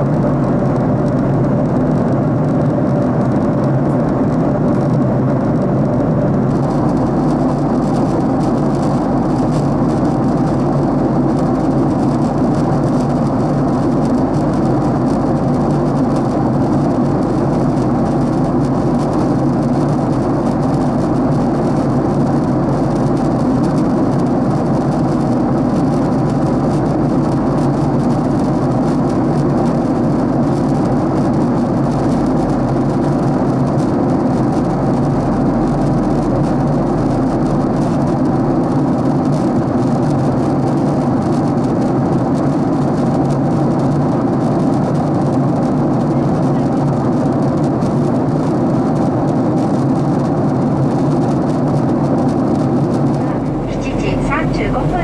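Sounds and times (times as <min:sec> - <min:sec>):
airliner cabin roar: 0:00.0 - 0:55.0
low hums: 0:53.1 - 0:55.0.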